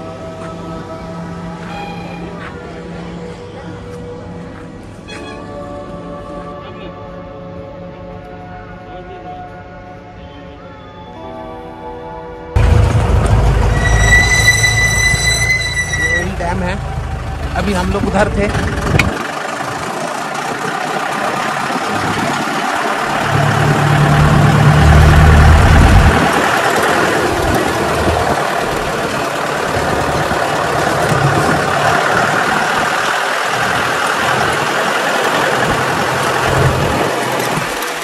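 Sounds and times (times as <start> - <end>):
car engine running: 12.6 - 14.0, 16.2 - 38.0
loud low rumble: 12.6 - 38.0
wind and road noise: 12.6 - 38.0.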